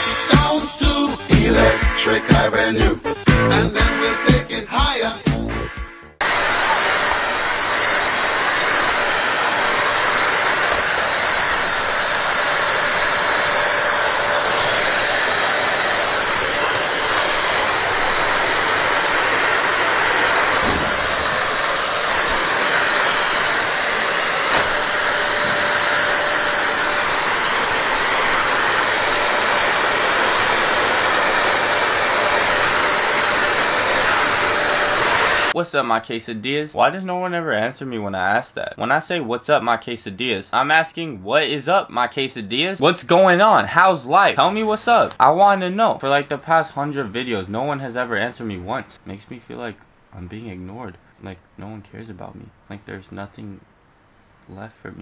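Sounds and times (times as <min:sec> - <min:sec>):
vacuum cleaner running: 0:06.2 - 0:35.6.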